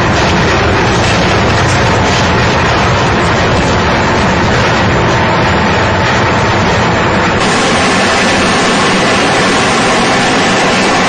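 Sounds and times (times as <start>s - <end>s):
extruder machine whining: 0.0s - 11.0s.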